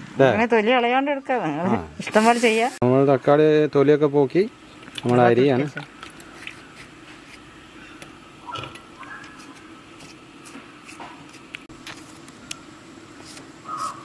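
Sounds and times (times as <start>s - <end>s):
low steady hum: 2.8s - 14.0s.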